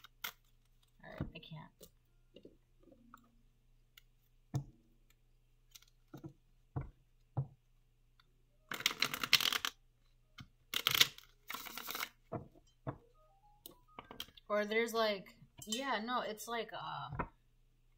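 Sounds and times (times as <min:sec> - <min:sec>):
cards riffle shuffling: 0:10.8 - 0:12.2.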